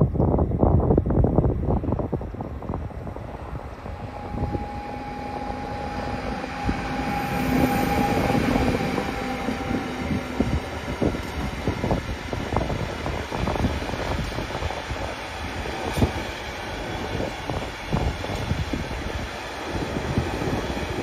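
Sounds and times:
wind buffeting microphone: 0.0 - 21.0
train passing: 0.3 - 21.0
steady whine: 2.0 - 17.6.

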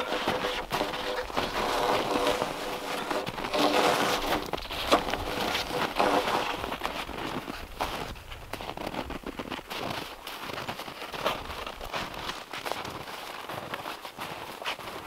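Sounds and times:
crunching and scraping of snow: 0.0 - 15.0.

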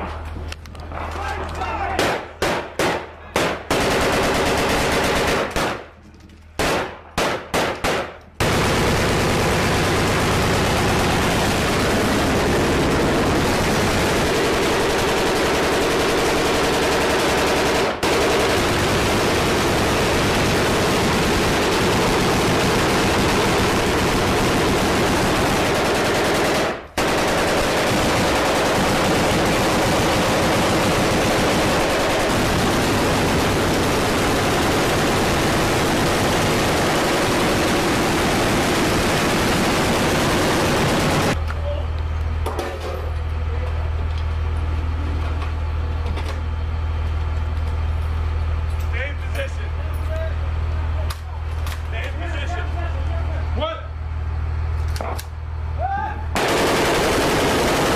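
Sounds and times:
heavy machine-gun fire: 2.0 - 6.0, 6.6 - 41.4, 56.3 - 57.9.

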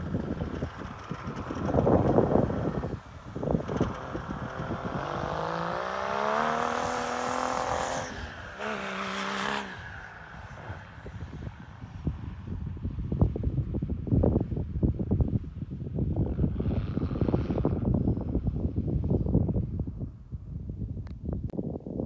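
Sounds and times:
diesel engine revving: 0.0 - 10.8.

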